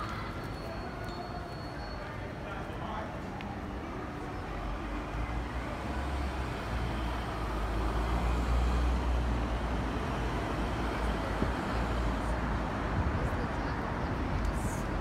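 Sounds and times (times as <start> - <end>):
street noise: 0.0 - 15.0
traffic engine rumble: 0.0 - 15.0.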